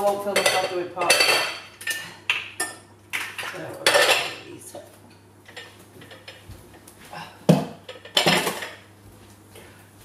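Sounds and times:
kitchen items clattering: 0:00.0 - 0:04.6, 0:07.5 - 0:08.9.

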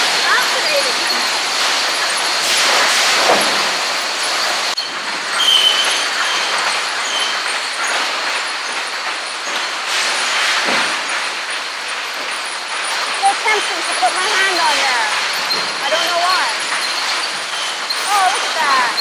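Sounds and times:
high machine squeal: 0:00.0 - 0:08.1, 0:12.3 - 0:19.0
sawmill machinery running: 0:00.0 - 0:19.0.

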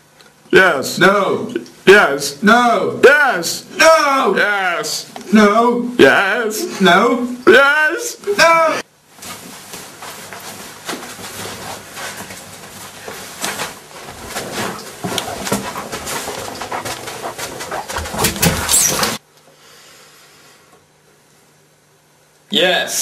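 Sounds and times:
rustling: 0:09.1 - 0:19.2
knocks and thumps: 0:14.1 - 0:19.2.

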